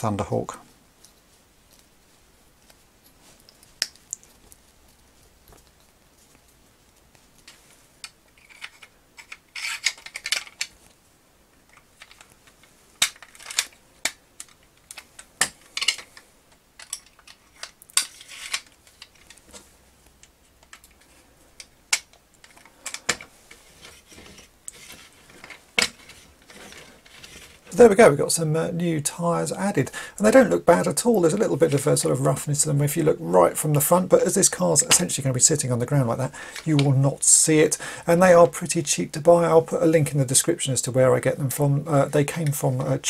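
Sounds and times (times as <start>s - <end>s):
rubber rubbing and scraping: 23.4s - 28.0s.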